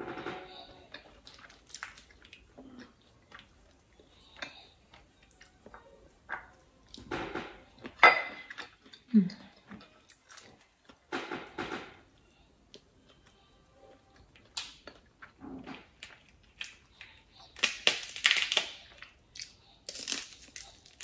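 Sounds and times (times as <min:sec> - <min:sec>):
shells cracking and snapping: 0:01.3 - 0:02.4, 0:14.4 - 0:15.0, 0:16.0 - 0:21.0.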